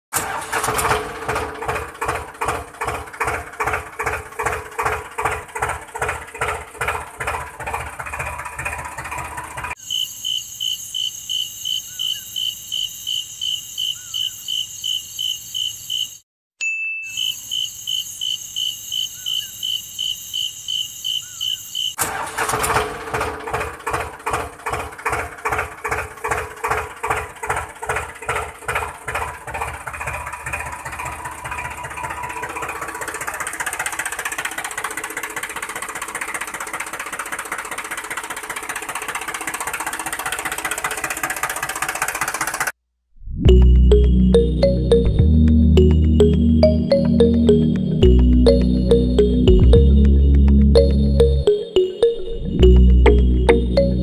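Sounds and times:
tractor engine chugging: 0.1 - 9.8, 22.0 - 42.7, 52.6 - 54.0
insect chirping: 9.8 - 16.2, 17.1 - 22.0.

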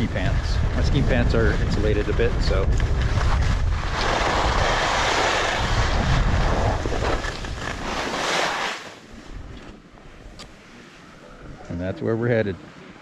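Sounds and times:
wind buffeting microphone: 0.0 - 8.1
skis hissing over snow: 3.8 - 9.0.

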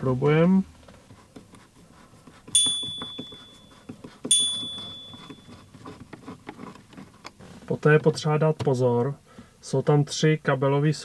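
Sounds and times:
bright chime dings: 2.6 - 3.7, 4.3 - 5.4.

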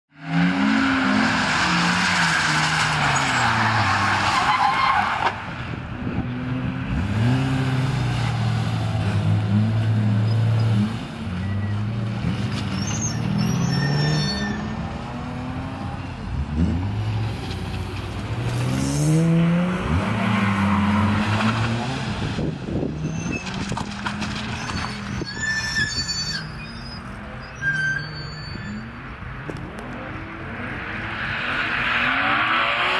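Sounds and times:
tyre squeal: 0.7 - 5.4, 10.1 - 14.9, 23.0 - 29.2
car engine revving: 5.7 - 25.2, 29.5 - 32.9.

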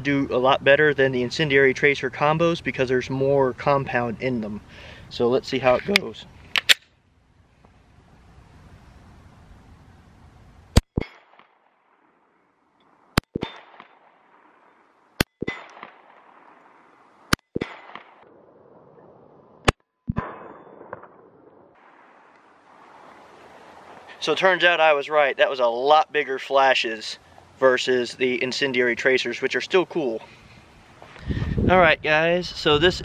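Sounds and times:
bullets striking steel target: 10.8 - 11.6, 13.2 - 14.1, 15.2 - 16.3, 17.3 - 18.3, 19.6 - 21.4
pistol shots: 13.2 - 14.5, 15.2 - 16.7, 17.3 - 18.3.

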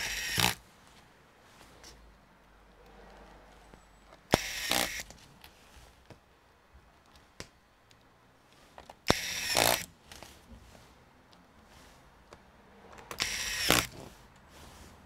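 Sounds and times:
electric screwdriver running: 0.0 - 0.6, 4.3 - 5.1, 9.1 - 9.9, 13.1 - 14.0.

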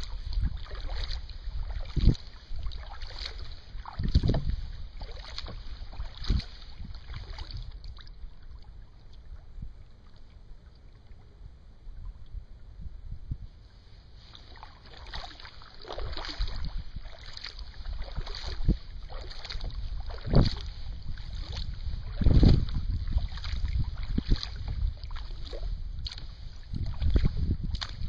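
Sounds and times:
wind buffeting microphone: 0.0 - 9.9, 11.5 - 28.0
water sloshing against hull: 0.0 - 28.0.

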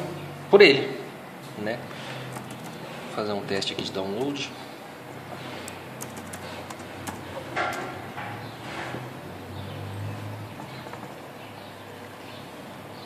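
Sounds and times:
laptop clicks: 2.3 - 2.8, 5.6 - 7.8.

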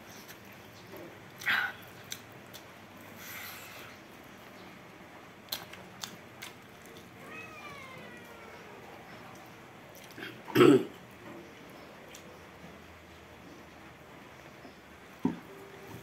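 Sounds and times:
mouth clicks from eating: 1.4 - 2.7.

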